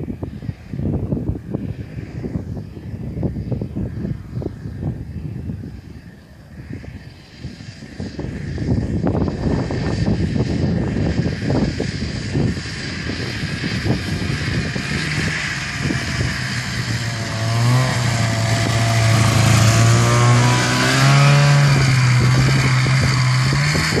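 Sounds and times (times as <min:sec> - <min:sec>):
snowmobile engine passing by: 0:06.6 - 0:24.0.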